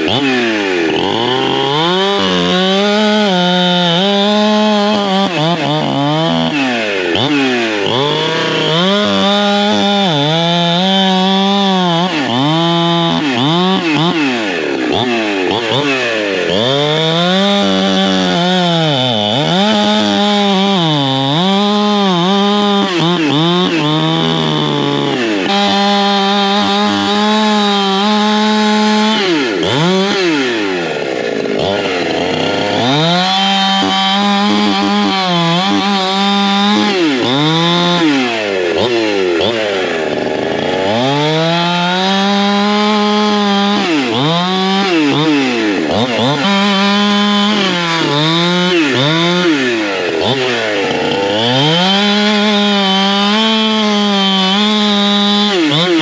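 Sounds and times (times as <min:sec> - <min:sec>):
chainsaw cutting a log: 0:00.0 - 0:56.0.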